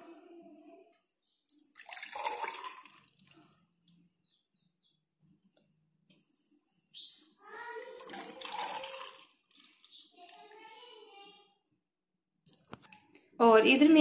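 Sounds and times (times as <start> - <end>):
lassi pouring into a glass: 1.7 - 3.2, 8.0 - 9.6.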